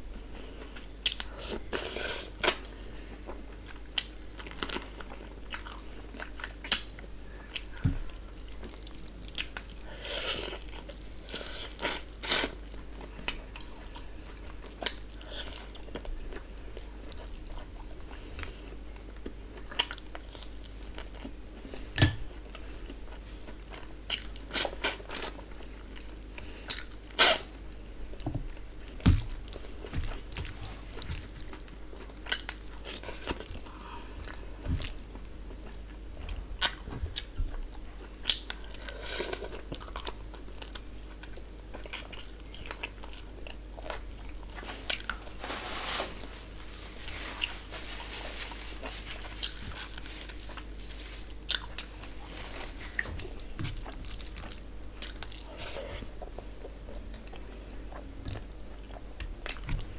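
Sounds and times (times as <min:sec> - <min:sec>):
chewing with wet mouth smacks: 0:28.9 - 0:45.2, 0:53.0 - 0:59.9.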